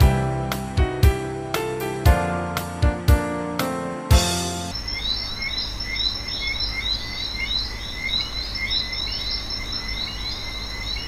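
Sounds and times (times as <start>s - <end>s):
high insect drone: 4.7s - 11.0s.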